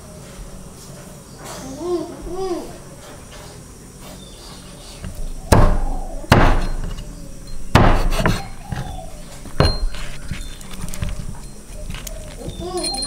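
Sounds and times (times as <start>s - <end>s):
sharp ringing knocks: 5.0s - 13.0s.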